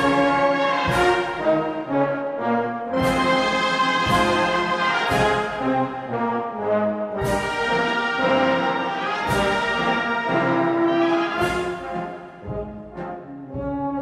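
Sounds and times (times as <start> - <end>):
brass sustained chords: 0.0 - 14.0
heavy drum and cymbal strokes: 3.0 - 5.9, 7.2 - 8.6.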